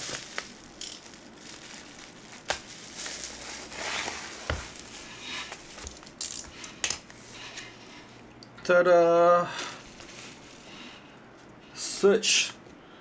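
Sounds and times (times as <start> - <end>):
bubble wrap crinkling: 0.0 - 7.2, 9.7 - 10.9.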